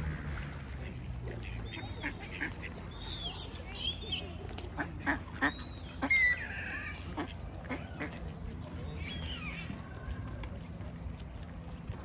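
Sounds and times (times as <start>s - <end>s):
gliding waterbird calls: 0.0s - 12.0s
ducks quacking: 0.6s - 9.8s.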